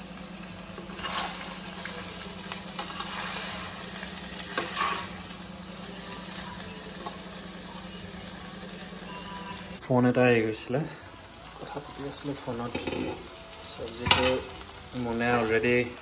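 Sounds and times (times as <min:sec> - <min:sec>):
food sizzling in frying pan: 0:00.0 - 0:09.8, 0:10.7 - 0:16.0
spatula scraping pan: 0:00.9 - 0:01.6, 0:02.7 - 0:05.3.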